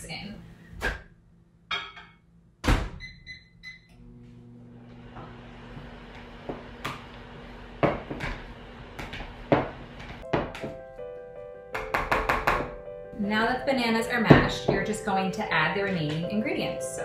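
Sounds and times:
microwave humming: 1.7s - 10.4s
keypad beeps: 3.0s - 3.9s.

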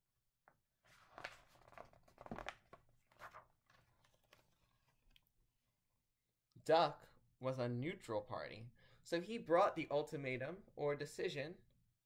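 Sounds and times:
book pages turning: 0.8s - 5.3s.

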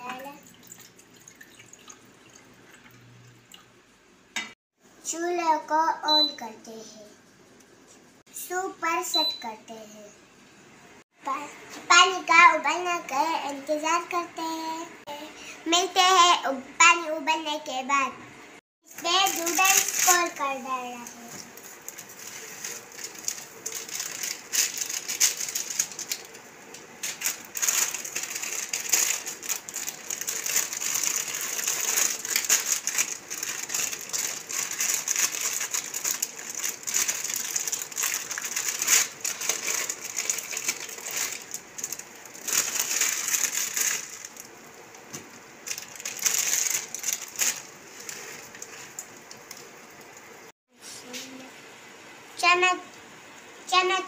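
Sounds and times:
plastic packet crinkling: 18.9s - 44.6s, 45.6s - 50.2s.

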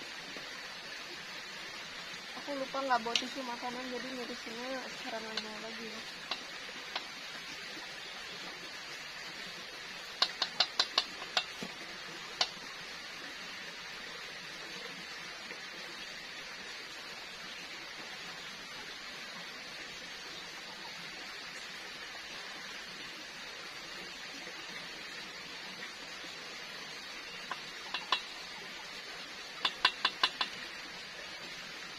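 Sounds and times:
metal utensil tapping pan: 10.2s - 11.6s, 27.5s - 28.3s, 29.6s - 30.6s.

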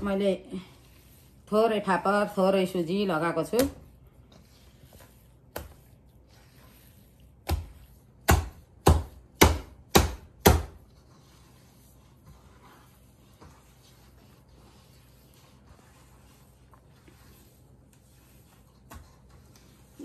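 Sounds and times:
dough slapping into a steel bowl: 7.4s - 10.9s.

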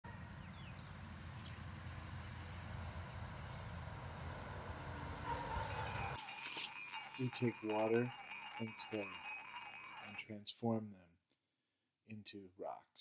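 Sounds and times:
low outdoor rumble: 0.1s - 6.2s.

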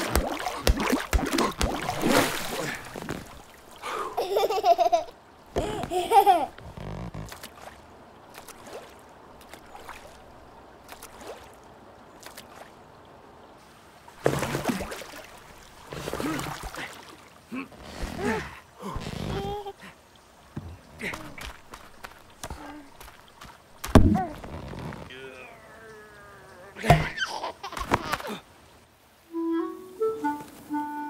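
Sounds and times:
river trickling: 0.0s - 31.0s.

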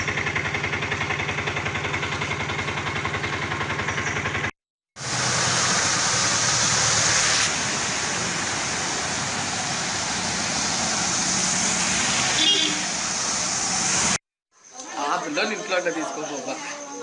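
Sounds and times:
engine idling: 0.0s - 14.2s
rushing floodwater: 5.0s - 14.2s.

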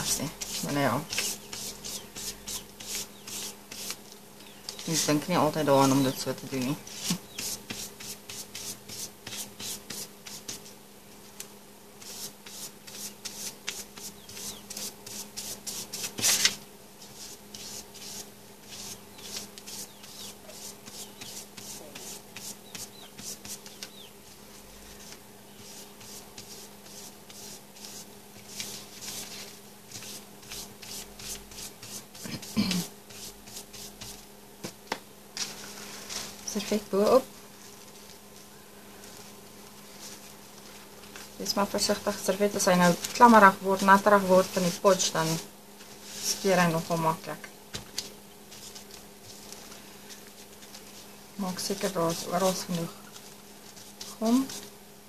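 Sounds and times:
scratchy brush strokes on paper: 0.0s - 4.0s, 4.7s - 10.7s, 12.0s - 34.2s, 42.0s - 47.0s, 48.5s - 54.7s
faint steady hum: 0.0s - 55.0s.

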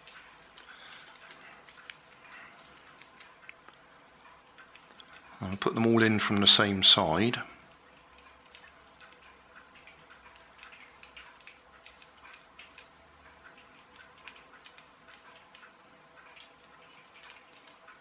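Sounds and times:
screwdriver clicking and scraping: 0.0s - 3.5s
faint steady hum: 0.0s - 18.0s.

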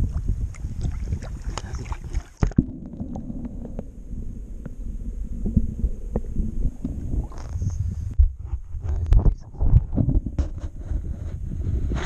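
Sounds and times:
water splashing: 0.0s - 4.5s
underwater rumble and gurgle: 0.0s - 12.0s.

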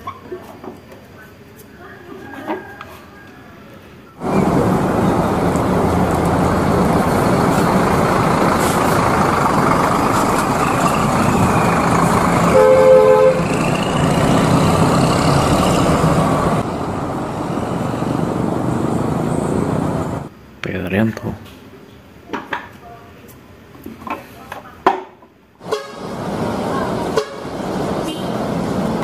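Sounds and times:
diesel coach engines running: 4.2s - 20.3s, 25.6s - 29.0s
two-tone horn blast: 12.4s - 14.8s, 25.6s - 26.2s, 27.1s - 28.5s.

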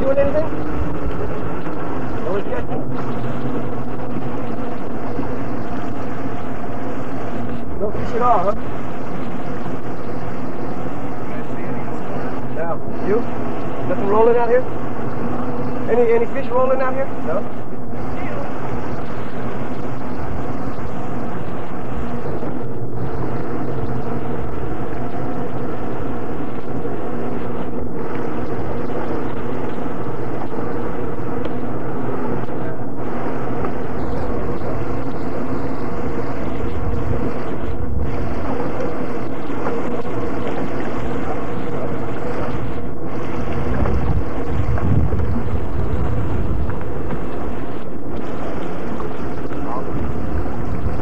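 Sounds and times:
boat engine humming: 0.0s - 51.0s
low rumbles on microphone: 0.0s - 51.0s.

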